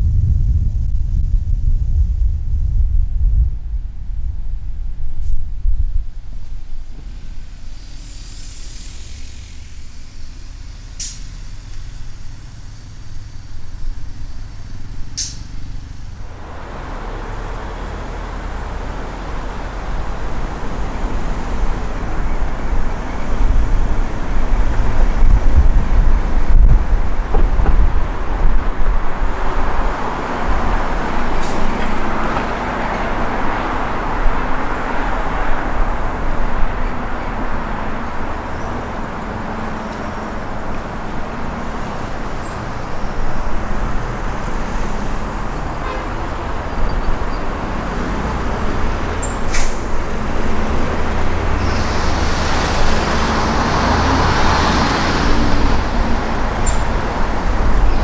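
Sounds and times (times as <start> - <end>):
tyre and traffic noise: 0.0 - 58.0
sharp click: 15.2 - 15.5.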